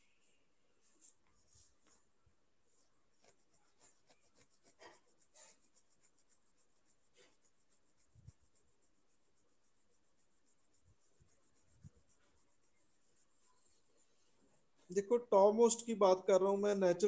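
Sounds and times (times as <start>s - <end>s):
faint scratching and rustling: 0.0s - 15.2s.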